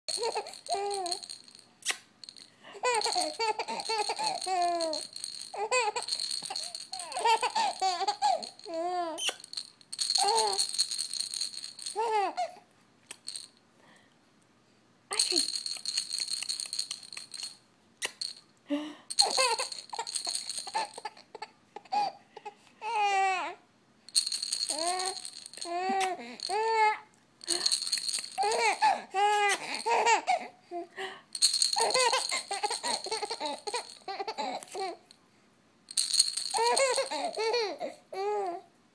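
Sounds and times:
baby giggling and laughing: 0.1s - 1.2s, 2.7s - 9.4s, 19.2s - 23.4s, 28.4s - 30.9s, 31.8s - 35.0s, 36.5s - 38.6s
stuffed toy rattling: 0.1s - 12.4s, 13.1s - 13.6s, 15.1s - 18.4s, 19.1s - 21.2s, 24.1s - 30.3s, 31.3s - 35.1s, 35.9s - 37.8s.

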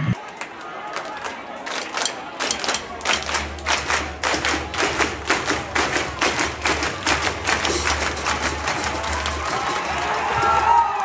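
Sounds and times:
crowd clapping in unison: 0.2s - 11.0s.

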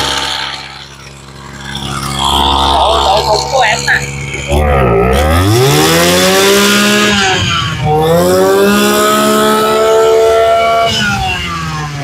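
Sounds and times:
brush cutter engine revving: 0.0s - 12.0s.

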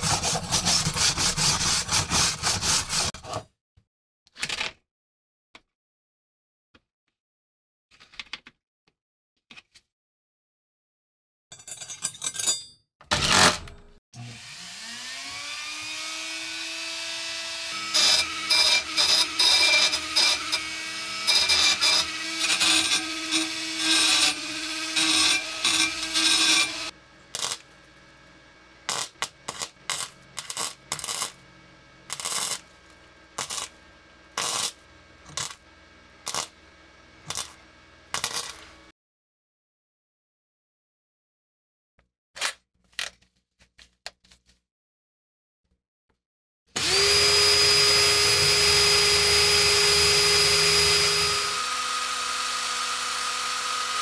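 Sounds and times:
burr grinding steel: 0.0s - 3.2s, 17.7s - 38.9s
rotary tool whining: 14.4s - 31.5s, 46.8s - 54.0s.

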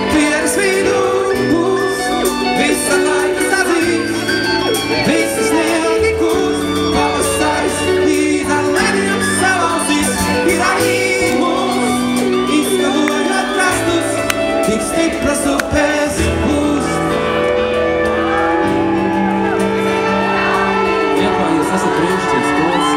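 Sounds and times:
man singing: 0.0s - 17.8s
keyboards: 0.0s - 22.9s.

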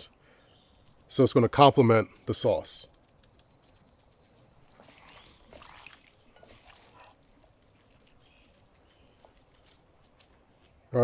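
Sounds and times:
spice shaker rattling: 2.2s - 4.8s.

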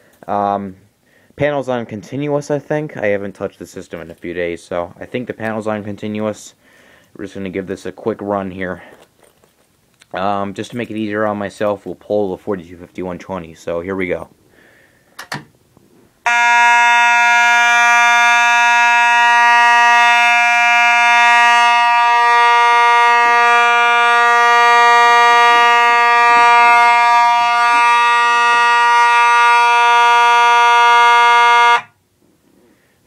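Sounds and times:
fire alarm horn buzzing: 16.2s - 32.0s.

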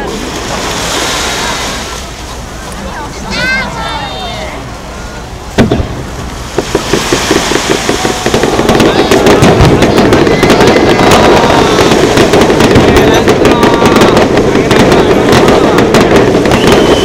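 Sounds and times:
fireworks bangs and crackling: 5.5s - 17.0s.

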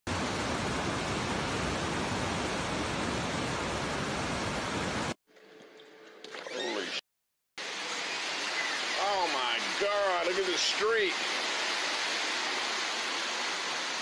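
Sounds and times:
floodwater rushing: 7.6s - 14.0s.

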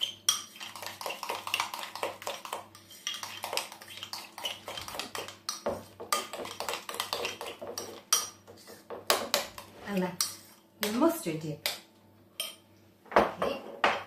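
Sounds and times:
spoon clinking against glass bowl: 12.4s - 12.6s.

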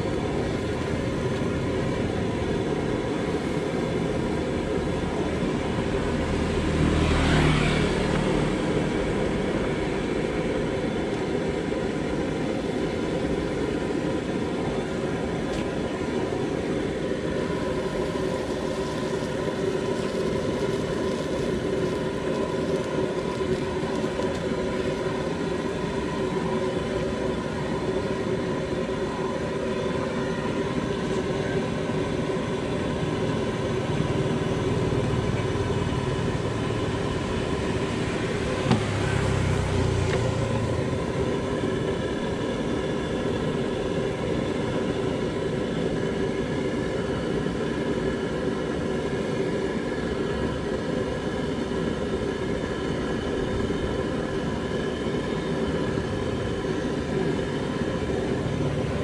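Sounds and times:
wok burner rushing: 0.0s - 59.0s
greens sizzling in wok: 17.4s - 26.4s, 32.7s - 41.2s.

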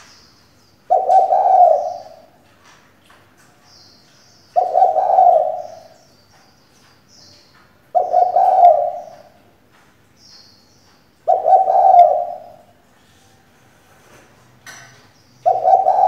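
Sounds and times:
dove cooing: 0.9s - 2.4s, 4.6s - 6.0s, 7.9s - 9.4s, 11.2s - 12.8s, 15.4s - 16.0s.

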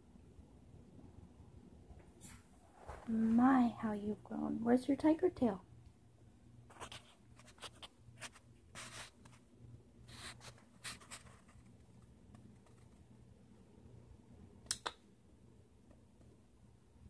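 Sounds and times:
sharp clicks: 14.7s - 15.0s.

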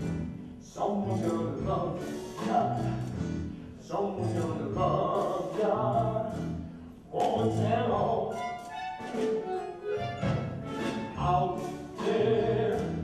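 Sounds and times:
man singing: 0.0s - 8.7s, 11.0s - 13.0s
live band accompaniment: 7.2s - 13.0s.

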